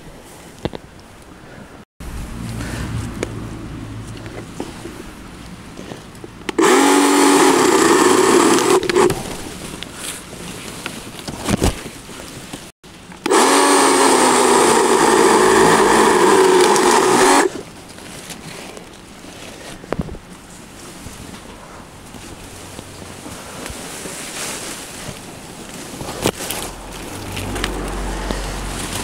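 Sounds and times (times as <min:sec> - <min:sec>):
power saw cutting wood: 0:06.5 - 0:09.2, 0:13.2 - 0:17.6.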